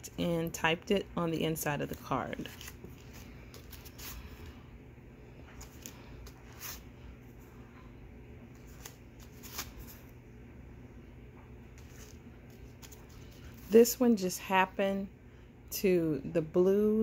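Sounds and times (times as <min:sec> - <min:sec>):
faint low hum: 0:00.0 - 0:17.0.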